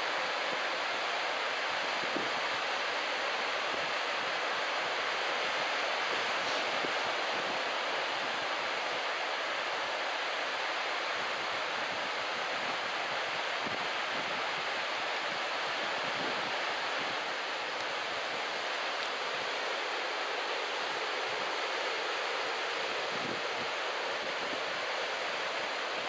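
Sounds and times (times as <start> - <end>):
ocean surf: 0.0 - 26.0.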